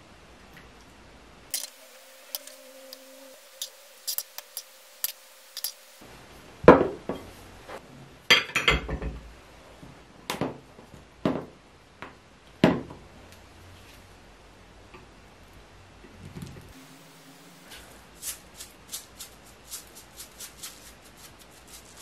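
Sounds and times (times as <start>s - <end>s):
dishes clinking on a table: 8.3s - 9.2s.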